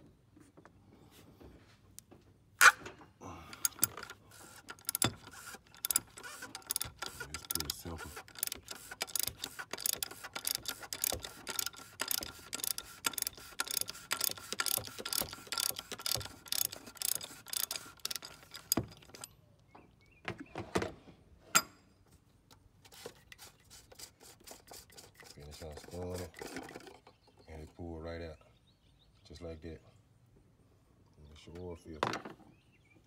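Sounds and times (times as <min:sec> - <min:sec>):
socket ratchet clicking: 0:03.5 - 0:19.3.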